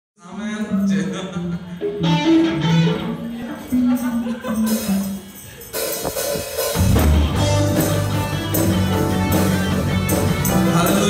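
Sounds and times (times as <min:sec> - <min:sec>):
worship band playing: 0:00.3 - 0:11.0
drum kit beat: 0:04.4 - 0:11.0.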